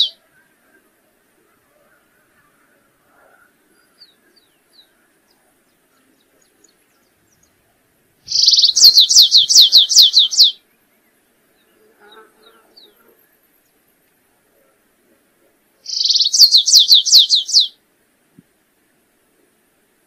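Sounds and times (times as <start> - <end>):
faint bird chirps: 0.0 - 14.0, 15.8 - 17.8
finch singing: 8.3 - 10.6, 15.9 - 17.7.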